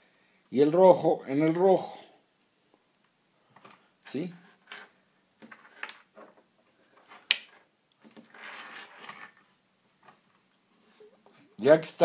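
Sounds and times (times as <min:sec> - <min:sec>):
wires rubbing: 0:04.4 - 0:11.4.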